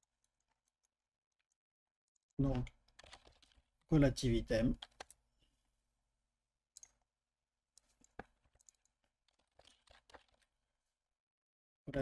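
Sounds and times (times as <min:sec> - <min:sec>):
computer keyboard and mouse clicks: 0:02.2 - 0:03.6, 0:04.7 - 0:05.2, 0:06.8 - 0:07.0, 0:07.8 - 0:10.5.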